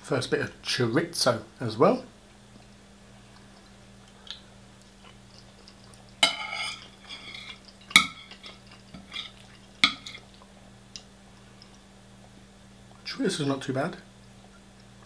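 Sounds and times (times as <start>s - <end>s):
faint low hum: 0.0s - 15.0s
metal spoon scraping a ceramic plate: 6.2s - 10.2s.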